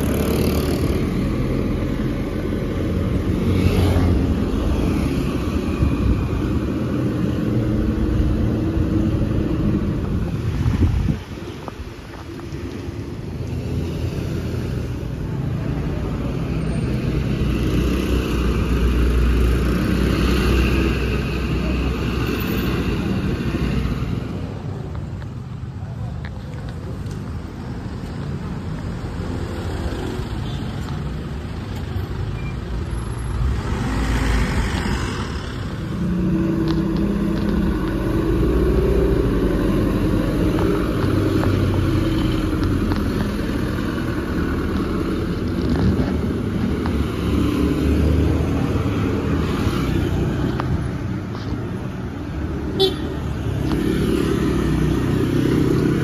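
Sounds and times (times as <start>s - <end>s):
motor scooters passing: 0.0s - 10.6s, 33.4s - 56.0s.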